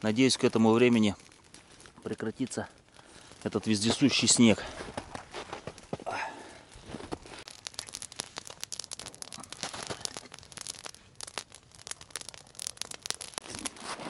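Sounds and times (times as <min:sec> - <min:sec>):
campfire crackling: 0:00.0 - 0:14.0
fire snapping and popping: 0:00.0 - 0:14.0.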